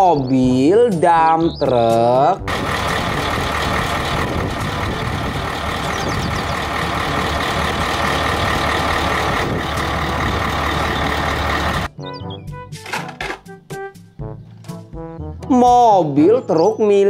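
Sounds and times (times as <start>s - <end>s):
diesel truck engine idling: 2.4s - 11.9s.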